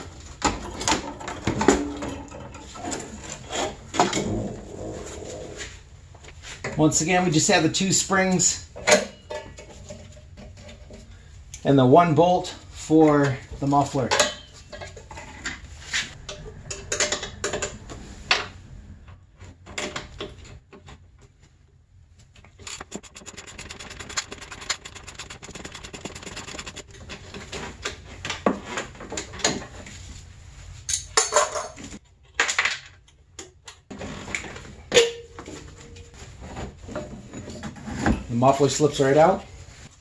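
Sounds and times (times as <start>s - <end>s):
rapid even clicking: 22.6s - 27.0s.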